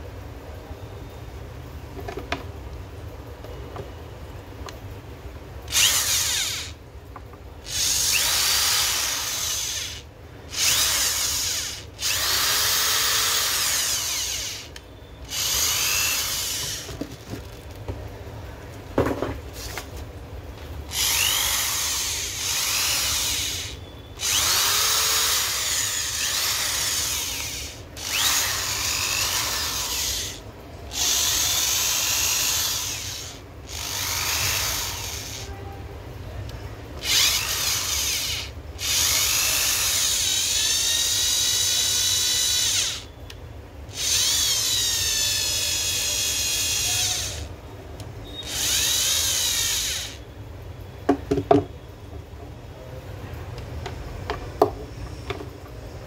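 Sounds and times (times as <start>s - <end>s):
electric screwdriver motor spinning: 5.7s - 6.8s, 7.6s - 17.0s, 20.9s - 35.5s, 37.0s - 43.1s, 43.9s - 47.5s, 48.4s - 50.2s.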